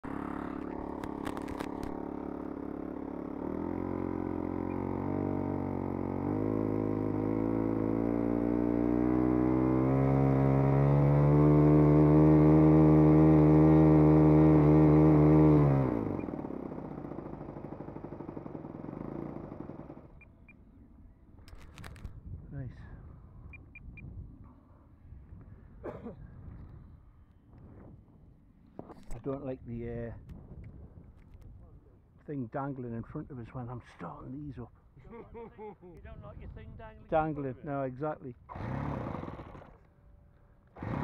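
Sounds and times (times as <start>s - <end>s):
model aircraft engine revving: 0.0s - 20.4s, 38.4s - 40.0s, 40.6s - 41.0s.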